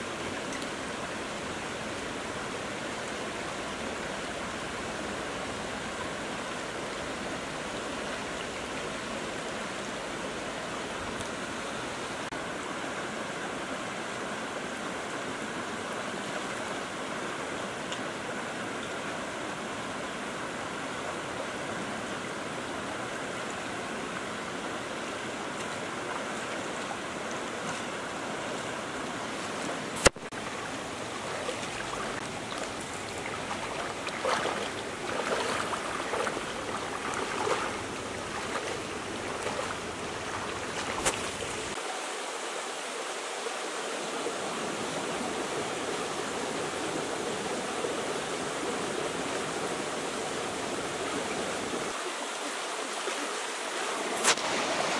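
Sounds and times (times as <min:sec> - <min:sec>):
stream rushing over stones: 0:00.0 - 0:54.9
splashing from wading: 0:29.3 - 0:41.8.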